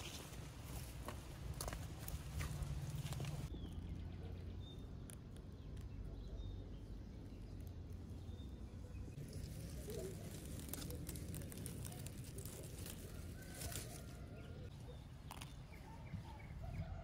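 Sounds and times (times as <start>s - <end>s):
grass and leaves rustling: 0.0s - 3.5s, 7.0s - 16.0s.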